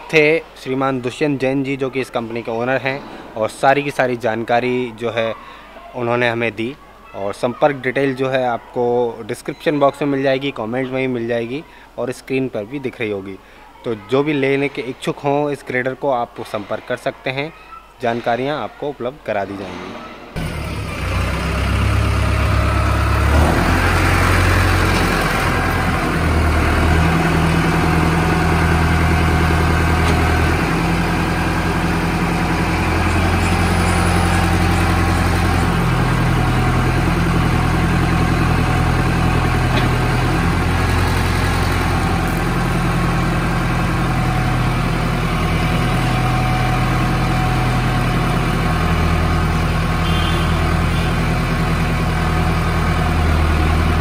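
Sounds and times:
tractor diesel engine running: 20.4s - 54.0s.

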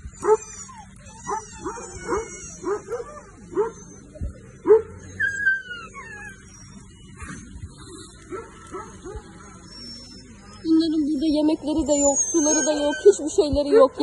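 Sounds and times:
dog whining: 0.0s - 10.7s, 11.6s - 13.4s
dogs barking and yelping: 0.0s - 10.7s, 11.5s - 14.0s.

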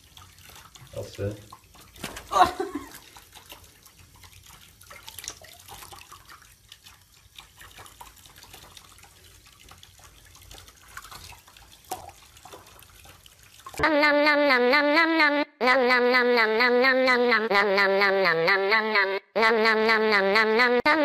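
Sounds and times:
water drips and splashes in tub: 0.0s - 14.3s.

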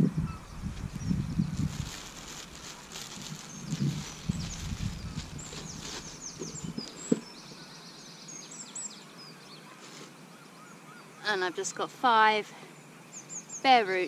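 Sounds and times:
small birds chirping: 0.1s - 14.0s
plastic bag rustling: 0.8s - 7.2s.

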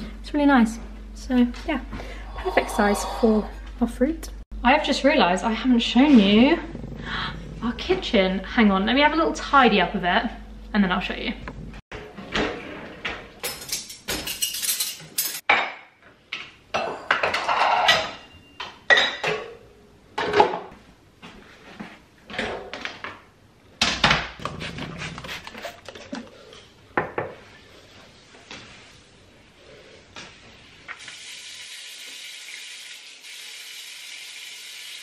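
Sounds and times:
dishes and cutlery clinking: 13.4s - 15.8s, 16.8s - 19.6s.

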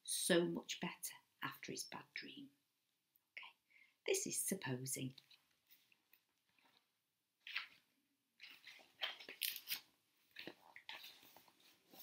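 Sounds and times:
book pages rustling: 5.2s - 12.0s.

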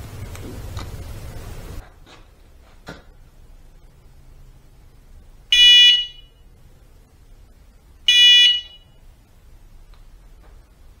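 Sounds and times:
bike horn high-pitched blasts: 5.5s - 6.4s, 8.1s - 8.9s.

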